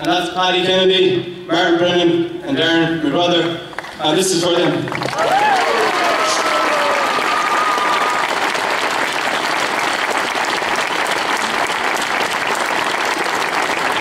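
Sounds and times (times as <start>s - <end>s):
crowd applauding: 3.7s - 14.0s
long held shout: 5.1s - 8.4s.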